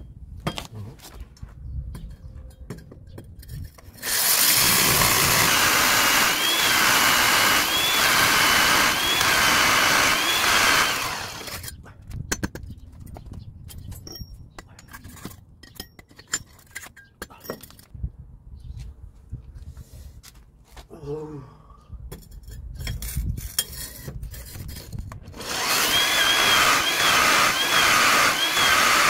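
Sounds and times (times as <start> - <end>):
hammer drill boring into brick: 4.0 - 11.7, 25.3 - 29.0.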